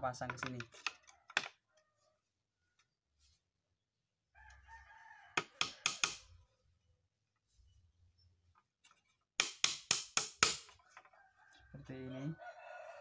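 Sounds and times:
rooster crowing: 4.4s - 6.3s, 10.8s - 13.0s
hammer driving nail into wood: 5.4s - 6.3s, 9.4s - 10.8s.

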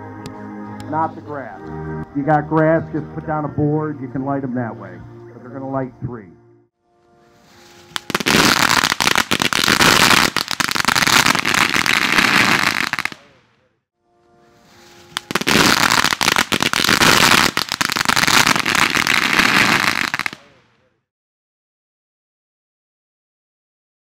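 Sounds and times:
firework hissing: 7.6s - 13.3s, 15.0s - 20.4s
firework crackling pops: 7.9s - 13.5s, 15.0s - 20.6s.

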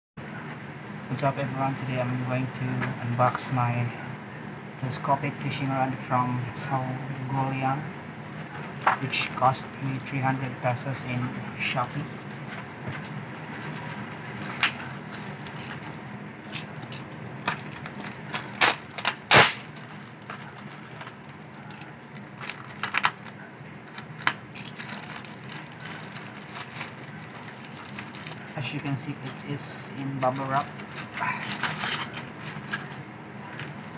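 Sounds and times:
plastic wrapping crinkling: 12.2s - 33.9s.

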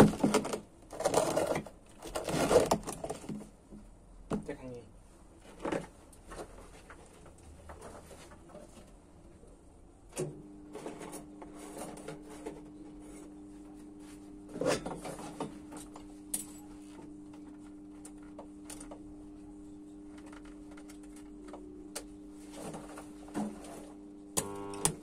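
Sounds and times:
welder humming: 24.4s - 25.0s.

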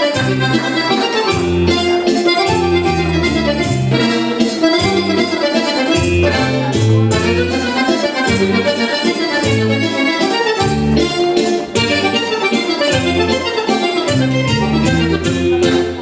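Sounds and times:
accordion folk dance music: 0.0s - 16.0s
bass line: 0.0s - 16.0s.

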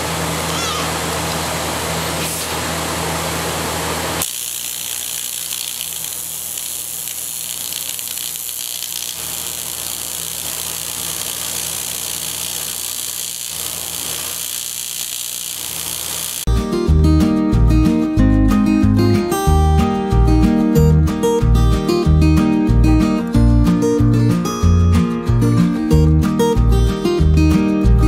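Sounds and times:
welding arc hum: 0.0s - 16.5s.

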